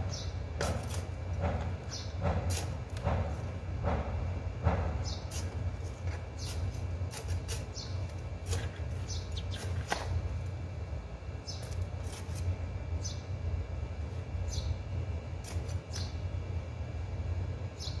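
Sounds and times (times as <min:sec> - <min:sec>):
steady low hum: 0:00.0 - 0:18.0
trowel scraping soil: 0:02.4 - 0:03.0, 0:05.2 - 0:10.2, 0:11.6 - 0:12.5, 0:15.4 - 0:16.1.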